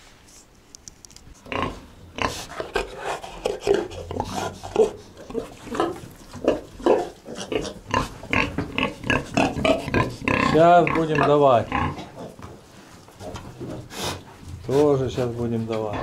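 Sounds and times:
pigs grunting and squealing: 1.5 - 12.4.

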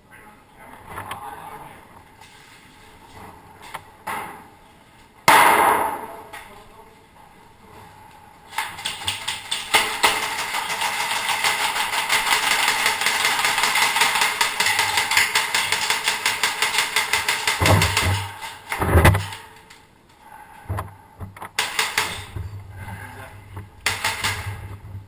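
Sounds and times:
airsoft gun bang: 5.3 - 6.1, 13.7 - 18.4.

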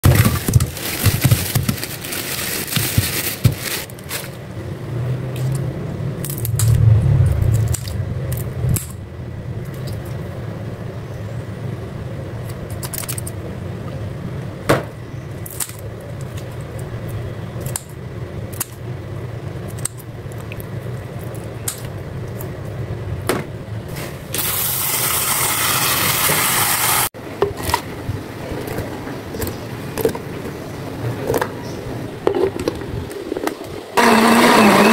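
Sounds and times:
low steady hum: 0.0 - 24.4.

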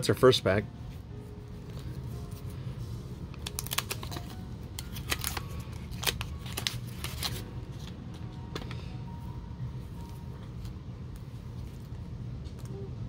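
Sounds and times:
steady low hum: 0.0 - 13.0
cards and wrapper rustling: 1.5 - 8.8.

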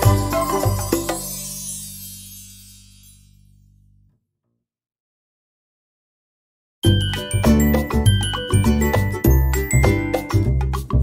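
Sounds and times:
upbeat music with bass beat: 6.8 - 11.0.

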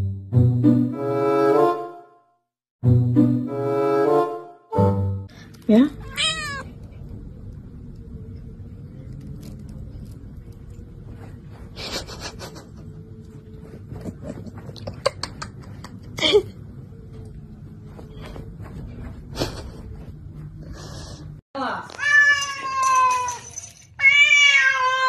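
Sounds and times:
plastic glove and bag crinkling: 9.0 - 10.8.

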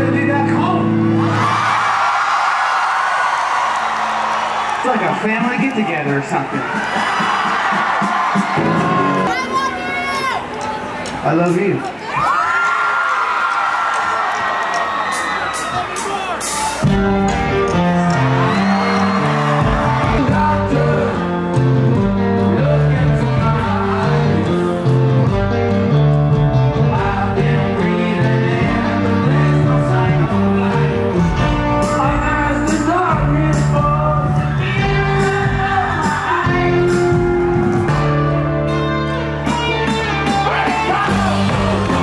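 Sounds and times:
rock band playing: 0.0 - 2.3, 3.3 - 12.0, 14.7 - 42.0
crowd cheering: 1.0 - 22.1, 34.4 - 38.2, 39.4 - 42.0
man singing lead: 18.5 - 21.6, 22.2 - 25.0, 26.7 - 37.5, 39.4 - 42.0.

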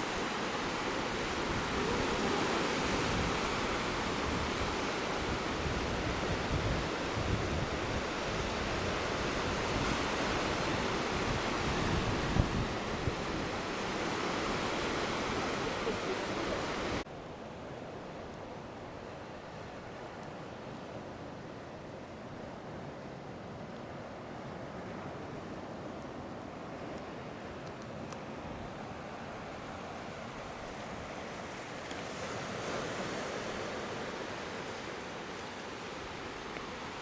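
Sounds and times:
wind buffeting microphone: 1.4 - 17.0.

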